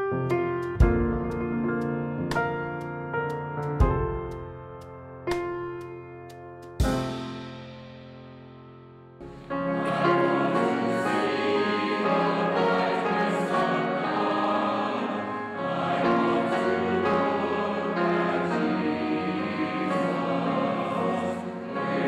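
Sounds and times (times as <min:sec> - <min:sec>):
choir singing: 0:09.2 - 0:22.0.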